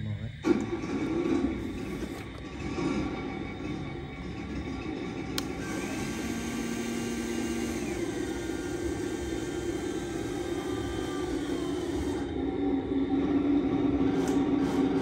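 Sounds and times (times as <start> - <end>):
model truck humming and whirring: 0.1 - 15.0.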